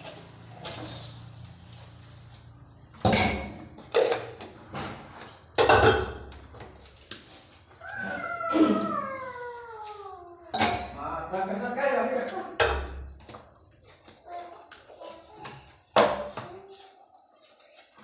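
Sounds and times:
dishes clattering in a steel sink: 3.0s - 6.5s, 10.5s - 11.0s, 12.5s - 13.4s
long falling animal call: 7.8s - 10.2s.

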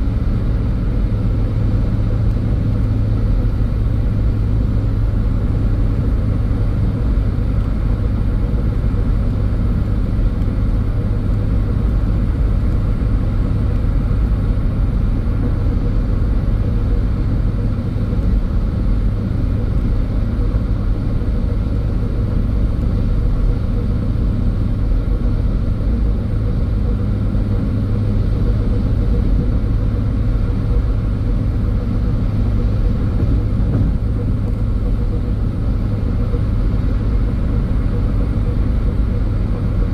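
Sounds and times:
car rumbling on road: 0.0s - 39.9s.

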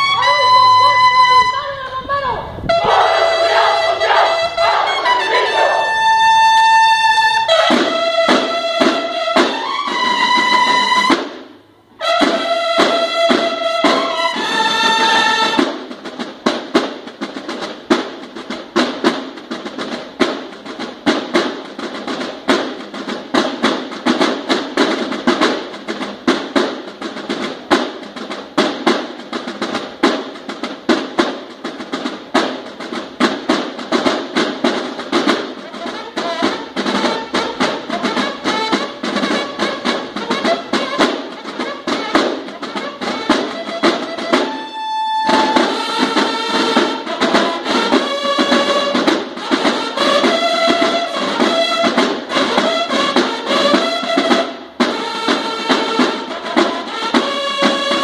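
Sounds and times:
bugle call: 0.0s - 11.2s, 12.0s - 15.6s, 35.6s - 58.0s
snare drums rolling: 0.0s - 58.0s.

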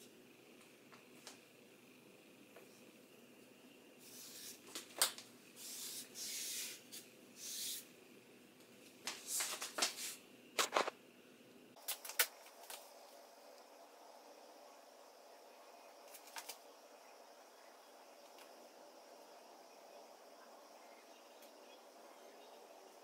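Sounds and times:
painting supplies rustling and clicking: 4.0s - 7.8s, 8.7s - 11.0s, 16.0s - 16.6s.

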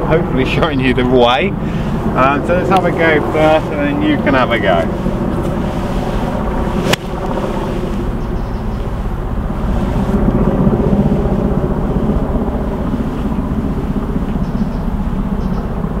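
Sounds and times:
steady low drone: 0.0s - 16.0s
golf club striking ball: 6.8s - 7.4s.

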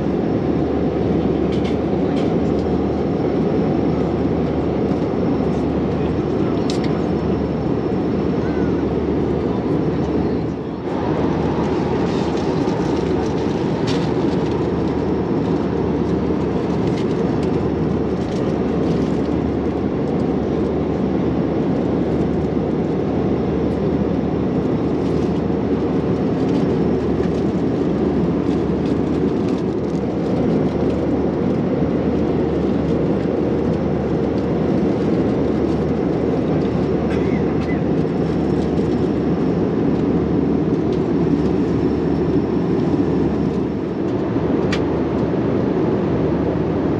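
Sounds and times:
airliner cabin roar: 0.0s - 46.9s.

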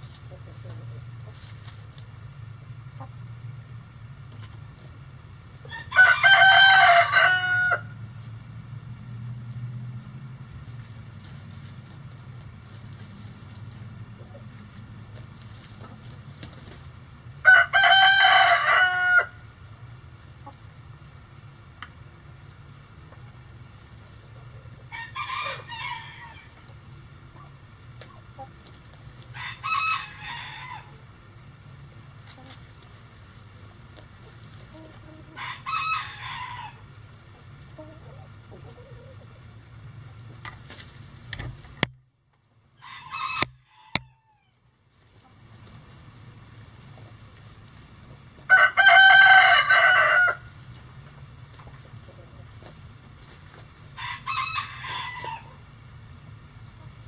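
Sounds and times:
chickens calling: 0.0s - 9.2s, 9.9s - 41.8s, 42.8s - 57.0s
rooster crowing: 5.7s - 8.0s, 17.4s - 19.5s, 24.9s - 26.5s, 29.3s - 31.0s, 35.4s - 36.9s, 42.8s - 44.6s, 48.5s - 50.5s, 54.0s - 55.6s.

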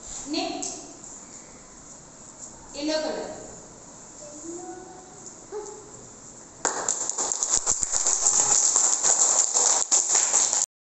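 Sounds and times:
children clapping: 6.6s - 10.7s.

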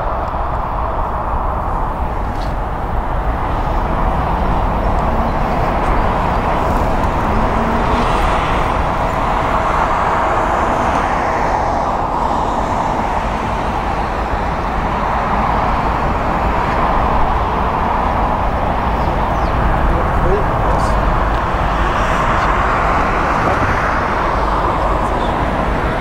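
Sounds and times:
distant jet engines roaring: 0.0s - 26.0s.

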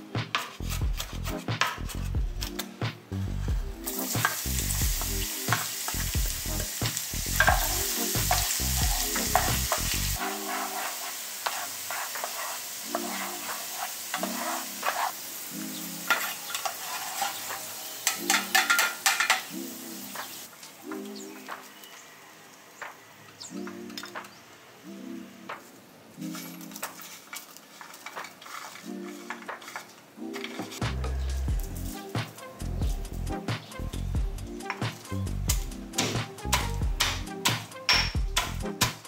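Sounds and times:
background music: 0.0s - 39.0s
garlic sizzling in oil: 3.8s - 22.0s, 26.3s - 30.4s.

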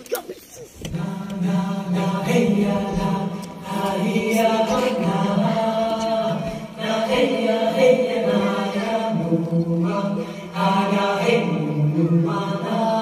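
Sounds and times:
choral chanting: 0.8s - 13.0s.

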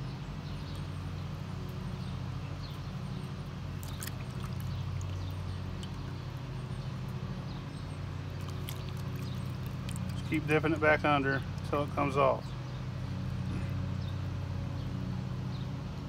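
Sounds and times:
steady low hum: 0.0s - 16.0s
water splashing and dripping: 3.8s - 6.2s, 8.3s - 10.4s.

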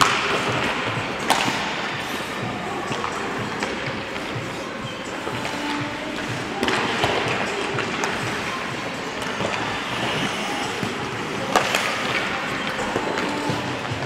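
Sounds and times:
puck cracking: 0.0s - 4.3s, 6.5s - 14.0s
pucks and sticks clicking: 0.0s - 14.0s
skate blades scraping ice: 5.2s - 14.0s.

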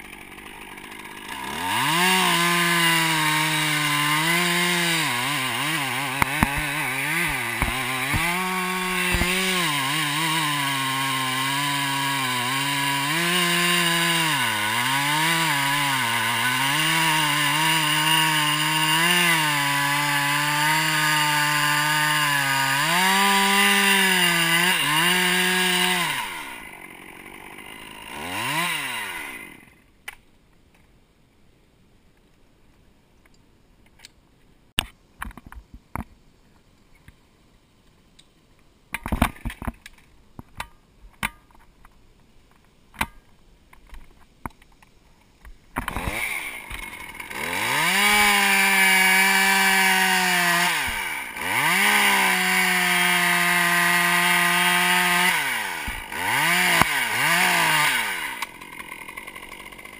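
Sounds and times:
chainsaw cutting wood: 0.0s - 29.9s, 45.8s - 59.9s.

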